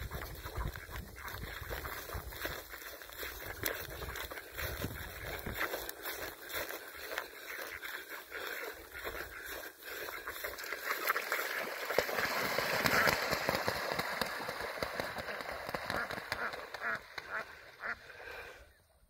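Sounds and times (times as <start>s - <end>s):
footsteps rustling through dry grass: 0.0s - 12.3s
water splashing: 9.4s - 18.2s.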